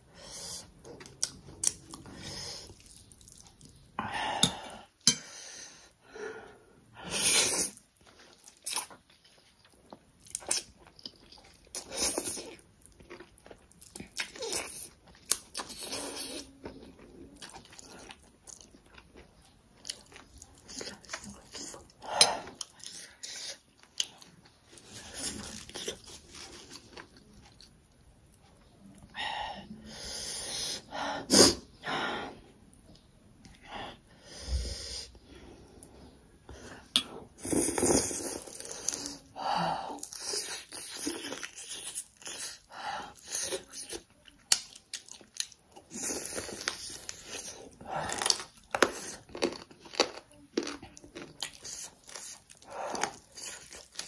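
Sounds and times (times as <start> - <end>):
close-up chewing noodles: 0.6 - 3.9, 7.6 - 28.0, 36.8 - 54.0.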